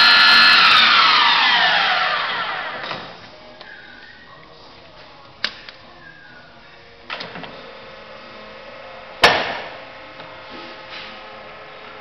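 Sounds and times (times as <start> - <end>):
drilling machine humming: 0.0 - 2.9.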